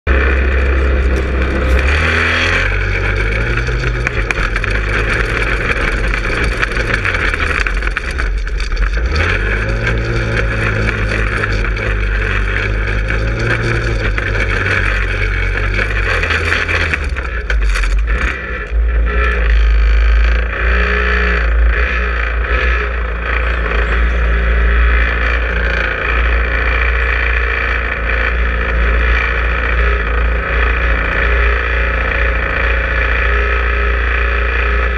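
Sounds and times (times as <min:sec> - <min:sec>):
go-kart engine revving: 0:00.1 - 0:34.9.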